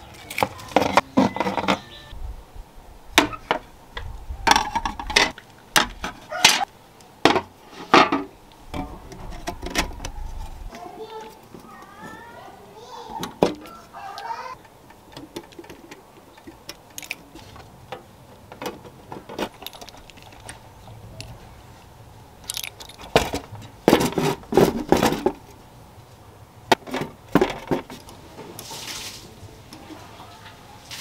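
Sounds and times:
small hard parts clicking: 14.6 - 21.4, 22.4 - 23.8.

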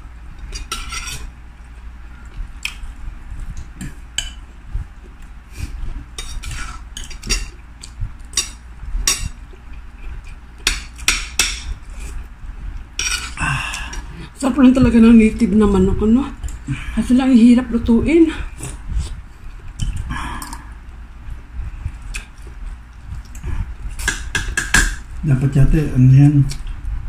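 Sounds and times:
cutlery clinking on dishes: 0.5 - 1.3, 13.0 - 13.4.

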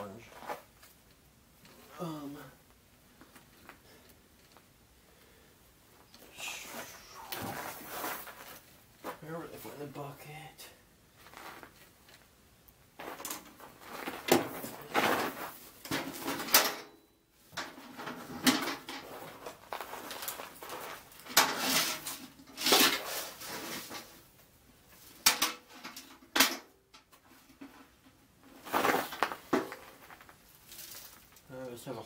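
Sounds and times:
objects clattering and knocking: 13.0 - 24.3, 25.0 - 31.5.

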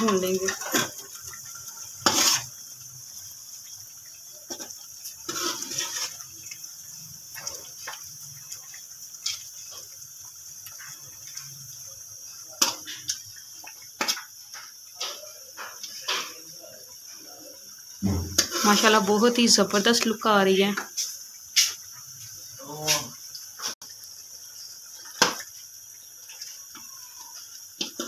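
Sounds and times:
metal spoon scraping a pan: 0.0 - 2.6, 4.5 - 6.6, 18.1 - 19.1
meat sizzling in oil: 0.0 - 28.0.

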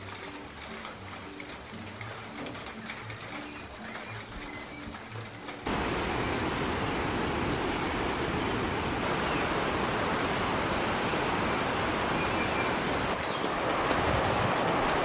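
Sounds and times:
flowing water rushing: 5.7 - 15.0.

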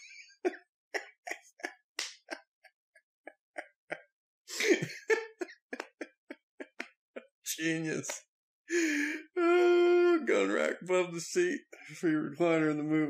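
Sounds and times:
man laughing breathlessly: 0.0 - 2.4, 4.5 - 6.8, 8.7 - 10.2.

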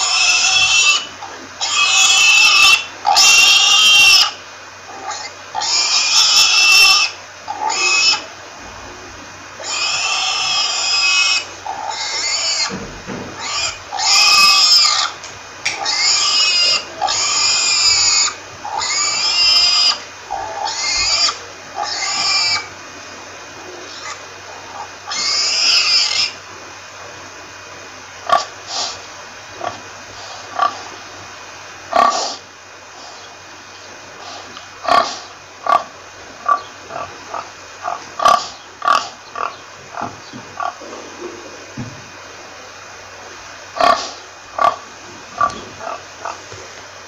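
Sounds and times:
pigs squealing: 0.0 - 26.4, 28.2 - 29.8, 30.4 - 31.0, 31.9 - 32.5, 34.2 - 41.8, 43.7 - 46.5.

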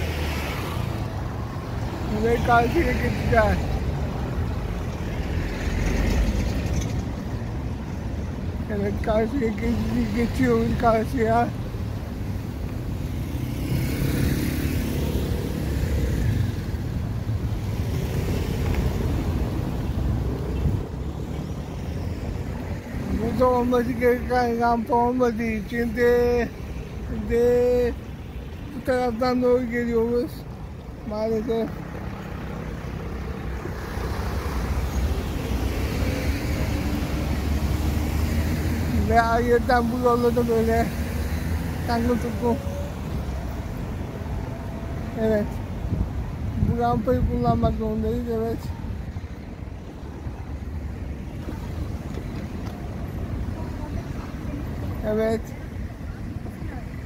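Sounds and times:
motor scooter passing: 13.2 - 16.6.

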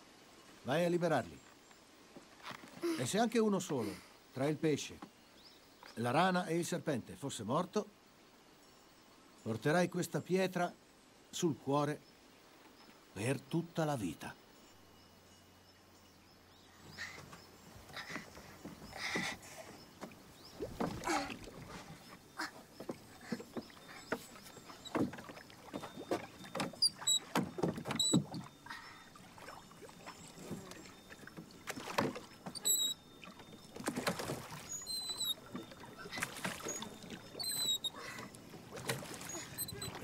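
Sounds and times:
oars splashing in water: 16.8 - 40.0
oars knocking against boat: 16.9 - 40.0.

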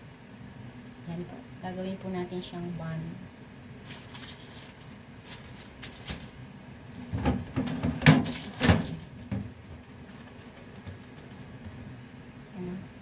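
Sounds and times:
thumps and rustles: 7.0 - 11.5.

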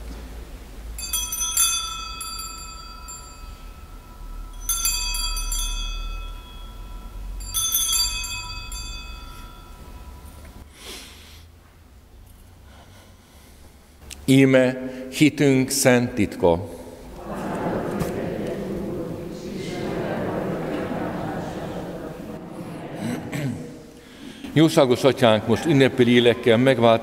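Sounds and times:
altar bells jingling: 0.9 - 10.6.

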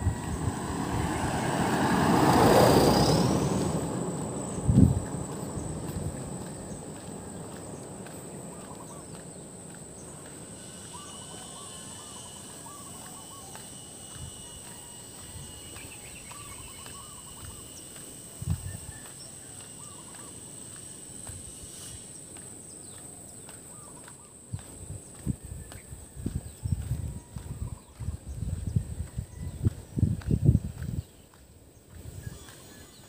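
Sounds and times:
high-pitched insect drone: 0.0 - 28.7, 32.0 - 33.0
footsteps on paved road: 0.0 - 33.0
lower insect tone: 0.0 - 33.0
bird chirps: 8.5 - 18.0.

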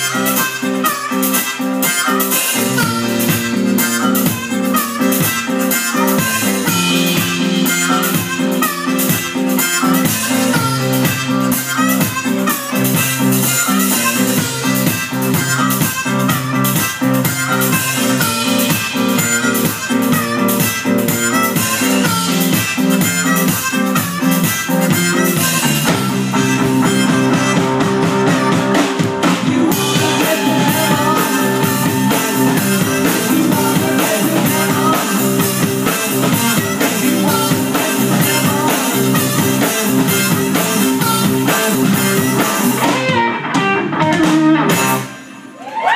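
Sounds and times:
harmonica: 0.0 - 45.3
bass guitar: 0.0 - 45.9
drum kit: 0.0 - 45.9
electric guitar: 0.0 - 45.9.

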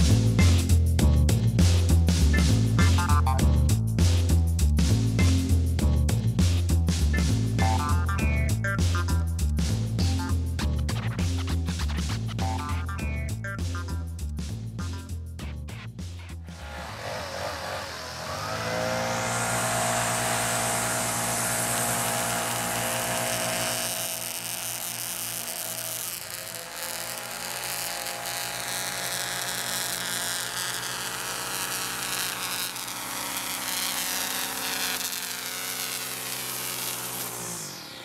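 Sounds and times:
leaf blower engine running: 2.3 - 3.4, 7.2 - 9.2, 12.2 - 13.9, 16.4 - 38.0.

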